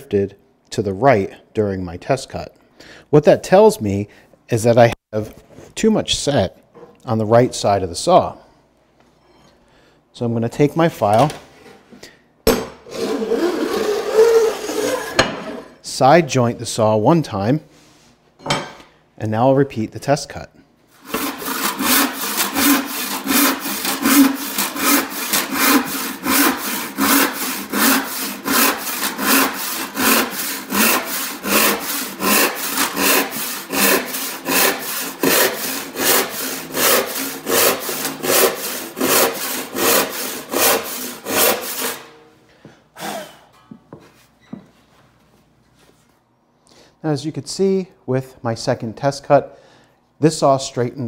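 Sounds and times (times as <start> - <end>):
hand saw cutting board: 12.8 - 15.8, 21.0 - 42.1.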